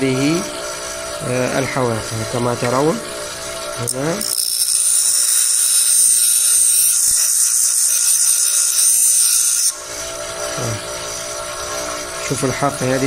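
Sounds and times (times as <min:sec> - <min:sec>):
grinder motor humming: 0:00.0 - 0:13.0
grinder wheel grinding steel: 0:01.2 - 0:13.0.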